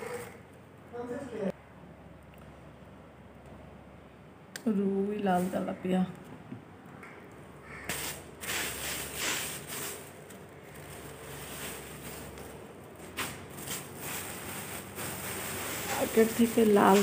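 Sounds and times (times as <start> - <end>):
plastic bag rustling: 7.9 - 17.0.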